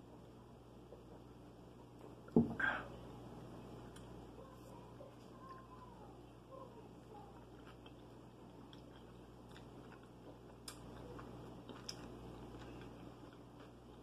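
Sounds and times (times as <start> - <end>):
person chewing: 7.3 - 14.0.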